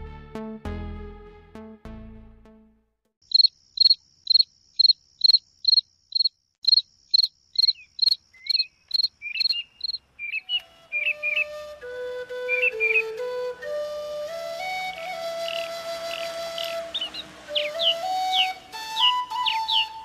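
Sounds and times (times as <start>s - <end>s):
cricket chirping: 3.2s - 10.4s.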